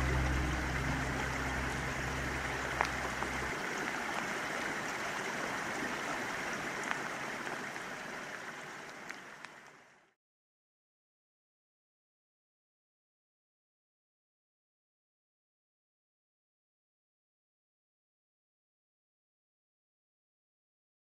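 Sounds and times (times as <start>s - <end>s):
low music notes: 0.0s - 3.7s
faint dripping clicks: 0.0s - 9.9s
running water hiss: 0.0s - 10.1s.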